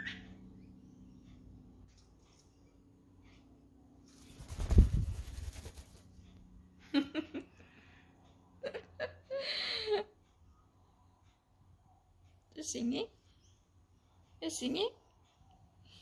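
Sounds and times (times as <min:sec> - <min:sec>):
bird wings flapping: 0:04.1 - 0:06.2
woman laughing: 0:06.9 - 0:07.5, 0:08.6 - 0:10.1.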